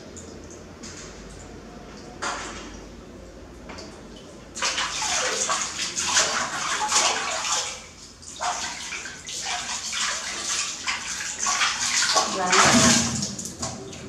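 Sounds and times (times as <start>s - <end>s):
water splashing in metal basin: 4.2s - 14.0s.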